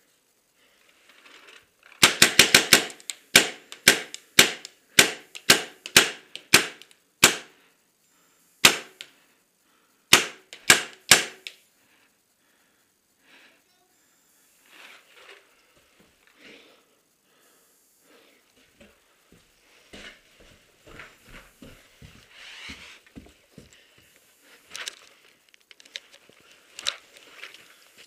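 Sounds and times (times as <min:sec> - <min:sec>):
paintball marker firing: 0:02.0 - 0:07.5, 0:08.6 - 0:09.0, 0:10.1 - 0:11.6.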